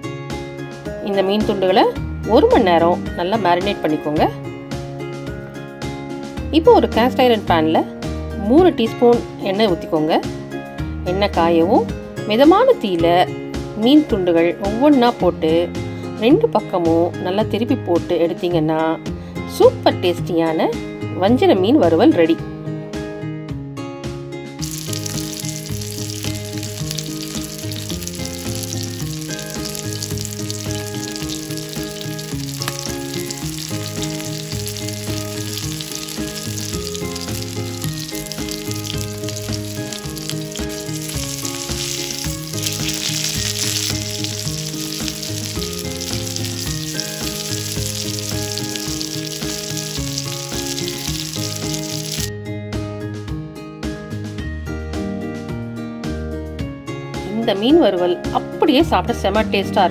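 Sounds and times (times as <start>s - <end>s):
background music: 0.0s - 59.9s
fish sizzling in oil: 24.6s - 52.3s.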